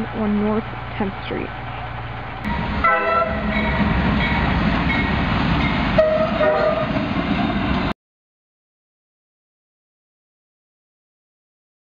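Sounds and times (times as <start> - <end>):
diesel locomotives rumbling: 0.0 - 8.0
train horn blasts: 2.5 - 4.4, 6.0 - 7.0.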